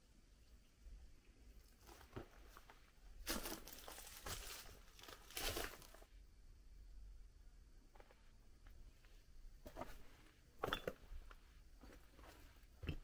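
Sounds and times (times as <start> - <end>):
footsteps crunching on rubble: 1.9 - 6.1.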